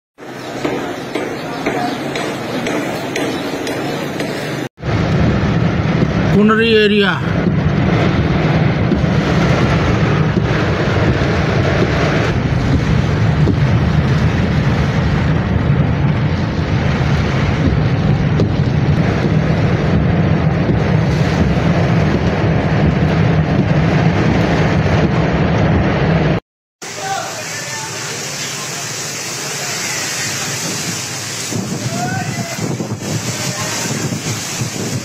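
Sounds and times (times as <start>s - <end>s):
wind buffeting microphone: 2.0s - 6.4s, 7.2s - 26.4s, 30.4s - 35.0s
wind rushing: 4.0s - 26.4s, 29.8s - 35.0s
heavy rain on a car: 7.9s - 35.0s.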